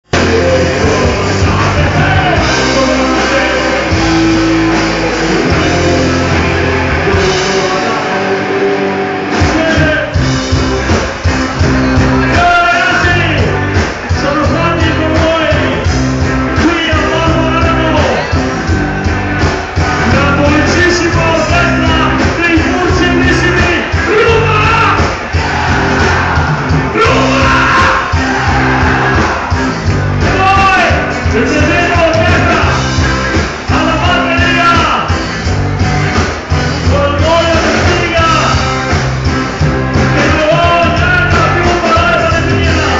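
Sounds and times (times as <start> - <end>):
lead vocal singing: 0.0 - 10.2, 19.6 - 32.9
live rock band playing: 0.0 - 42.9
drum hits: 9.3 - 42.9.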